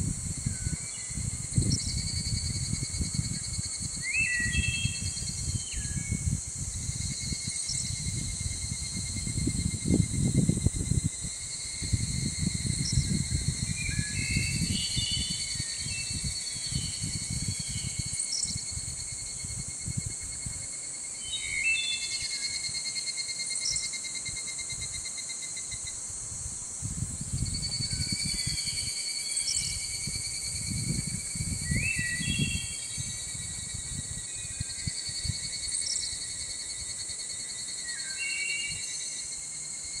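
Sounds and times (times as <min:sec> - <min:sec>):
wind rumble on microphone: 0:00.0 - 0:20.8, 0:25.9 - 0:37.0
insects trilling: 0:00.0 - 0:40.0.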